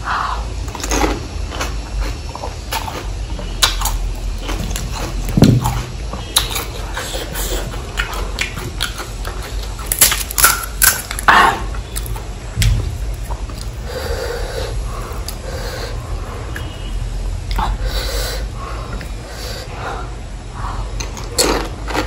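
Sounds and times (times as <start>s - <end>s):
crunchy chewing: 0.2s - 19.7s, 20.6s - 22.0s.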